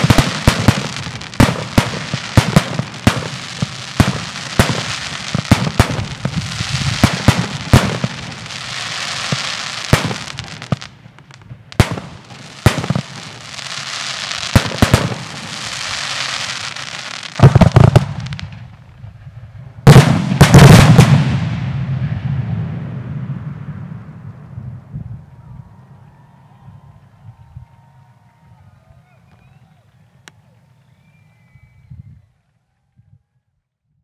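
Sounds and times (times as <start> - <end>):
hissing crackle of fireworks: 0.0 - 24.2.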